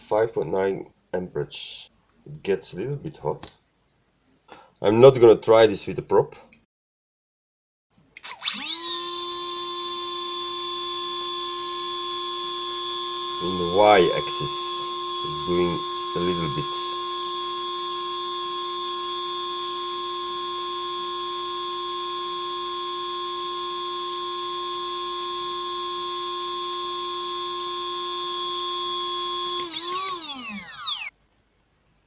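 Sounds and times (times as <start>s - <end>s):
electric motor high-pitched whine: 8.2s - 31.1s
motor winding down: 8.2s - 31.1s.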